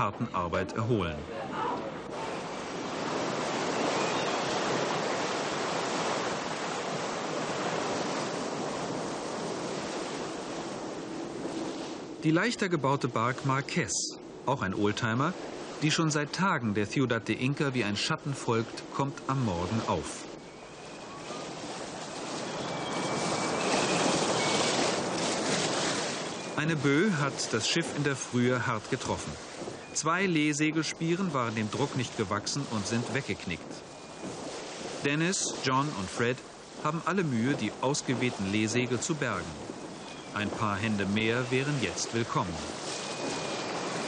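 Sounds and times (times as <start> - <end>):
sea water rushing along hull: 0.0 - 44.0
faint thin whistling: 20.4 - 21.5, 22.4 - 24.8.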